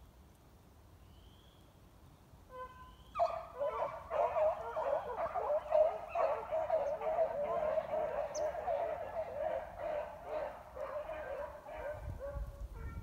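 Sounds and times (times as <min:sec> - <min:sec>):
dogs baying: 0:03.2 - 0:12.3.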